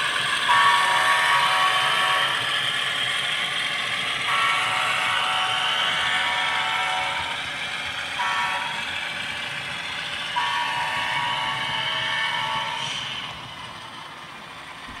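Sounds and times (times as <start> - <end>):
diesel air horn from small speaker: 10.5 - 13.0.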